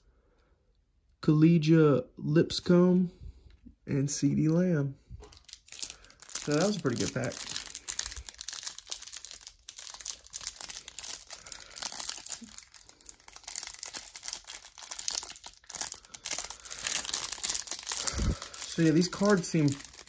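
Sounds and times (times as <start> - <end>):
plastic wrapper crinkling: 5.2 - 20.0.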